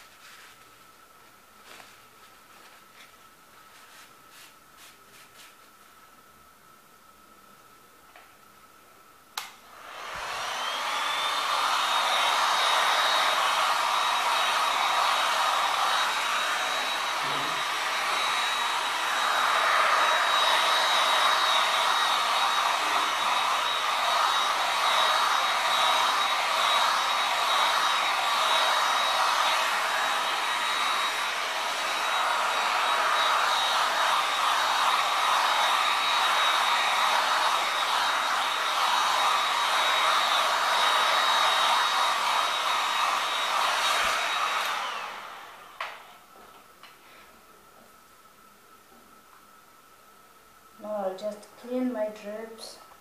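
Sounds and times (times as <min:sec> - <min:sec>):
hot-air blower motor whine: 0:09.4 - 0:47.2
loud rush of air: 0:09.7 - 0:34.8.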